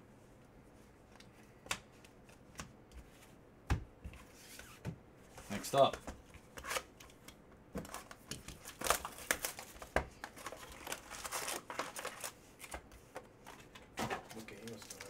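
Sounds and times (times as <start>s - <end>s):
shrink-wrap crinkling and tearing: 7.9s - 12.8s, 14.3s - 15.0s.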